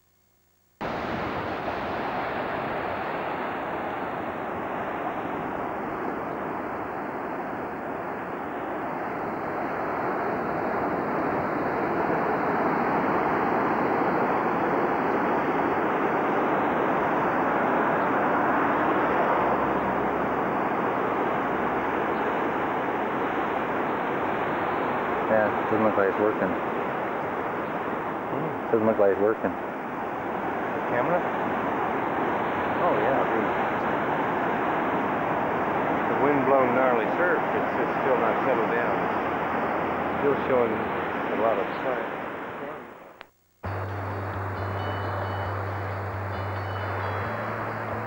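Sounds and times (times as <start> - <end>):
surf breaking on rocks: 0.8 - 8.6
wind rushing over microphone: 0.8 - 48.0.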